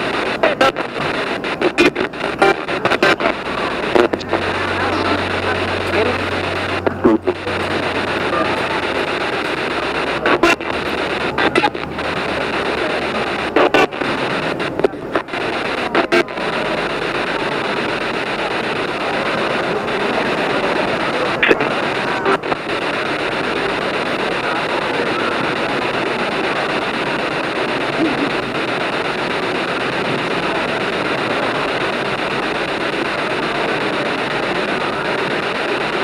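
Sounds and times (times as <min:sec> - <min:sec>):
radio static hiss: 0:00.0 - 0:36.0
short clicks and radio snippets: 0:00.0 - 0:36.0.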